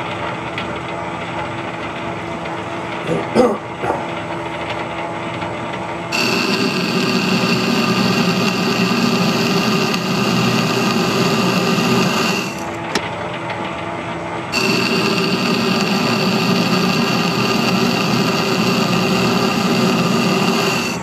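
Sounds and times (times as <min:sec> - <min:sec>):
metal lathe cutting thread: 0:06.1 - 0:12.9, 0:14.5 - 0:21.0.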